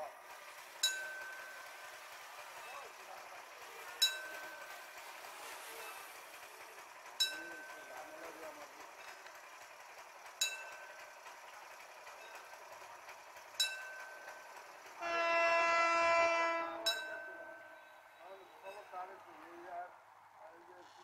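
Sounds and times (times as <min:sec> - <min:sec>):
locomotive horn blast: 0:15.0 - 0:18.2.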